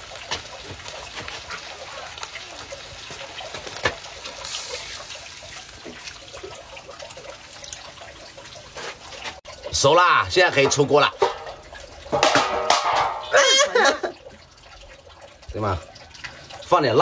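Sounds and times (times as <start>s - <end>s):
water trickling and splashing: 0.0s - 17.0s.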